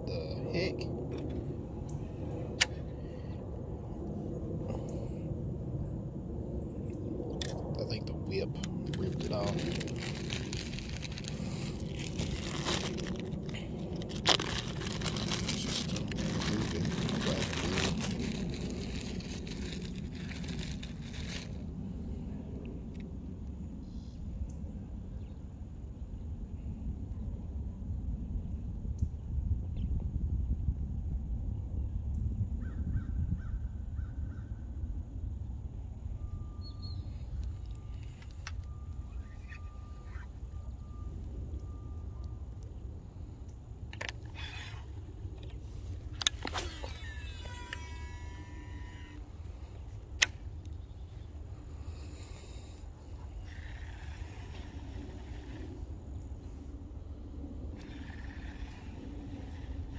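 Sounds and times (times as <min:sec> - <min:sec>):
steady low rumble: 0:00.0 - 0:59.9
plastic bag crinkling: 0:08.8 - 0:21.6.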